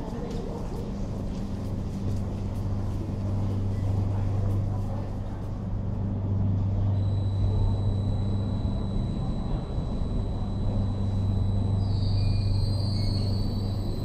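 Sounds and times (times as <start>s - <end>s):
electric train low hum: 0.0s - 14.0s
thin high steady tone: 6.9s - 14.0s.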